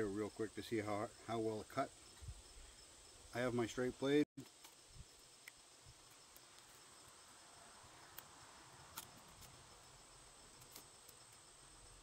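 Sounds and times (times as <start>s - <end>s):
crickets chirring: 0.0s - 12.0s.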